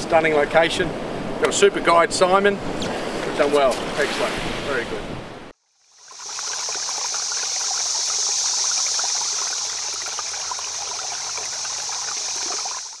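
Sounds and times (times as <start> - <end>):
running water trickling: 5.8 - 13.0.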